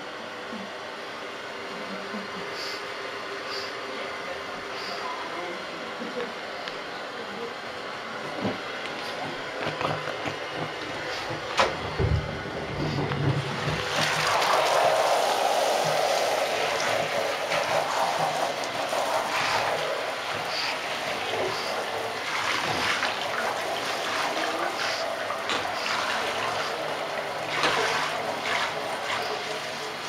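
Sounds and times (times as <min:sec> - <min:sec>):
shower spraying water: 0:12.7 - 0:30.0.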